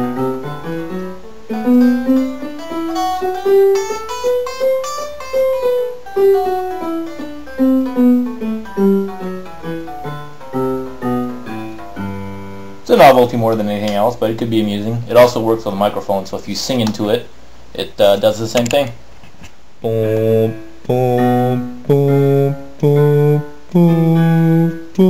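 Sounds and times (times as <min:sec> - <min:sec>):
electric guitar single notes: 0:00.0 - 0:12.8
keyboard notes: 0:00.0 - 0:14.2, 0:19.8 - 0:25.0.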